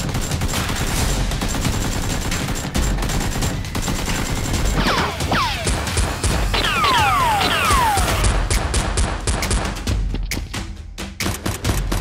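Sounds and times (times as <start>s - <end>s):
blaster fight: 0.0s - 9.0s
rapid automatic gunfire: 0.0s - 9.8s
whining ricochets: 6.5s - 8.3s.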